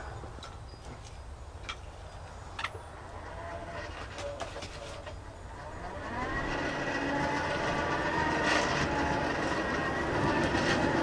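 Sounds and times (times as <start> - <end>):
air blower motor whine: 2.9 - 11.0.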